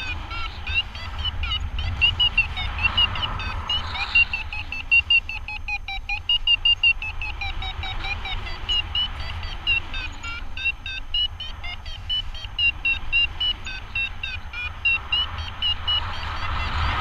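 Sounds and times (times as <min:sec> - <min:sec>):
rapid high beeps: 0:00.0 - 0:17.0
wind rumble on microphone: 0:00.0 - 0:17.0.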